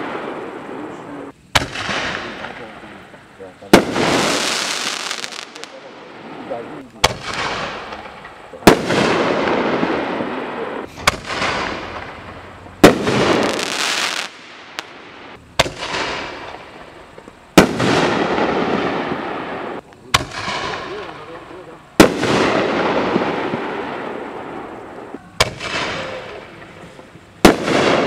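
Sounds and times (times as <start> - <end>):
noisy firework tail: 0.0 - 28.0
mortar launch thump: 10.9 - 12.2
firework shell bang: 10.9 - 13.7.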